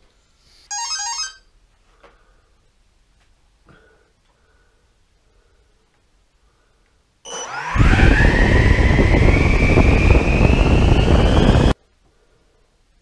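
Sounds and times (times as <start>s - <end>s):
electric ducted fan whine: 7.2s - 12.0s
rush of air: 7.6s - 11.8s.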